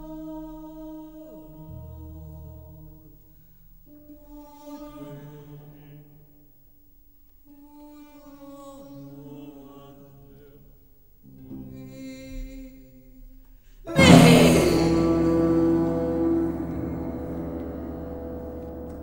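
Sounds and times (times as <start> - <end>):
choir and chamber ensemble: 13.9 - 19.0.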